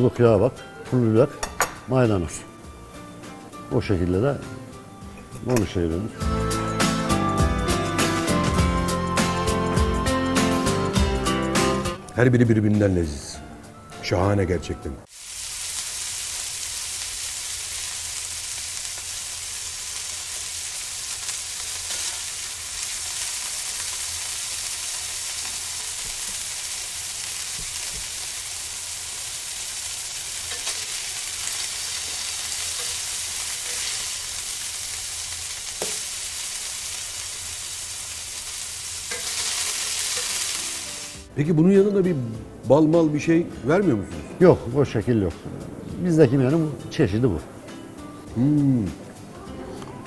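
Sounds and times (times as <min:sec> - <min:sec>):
meat sizzling on a grill: 0:15.1 - 0:41.3.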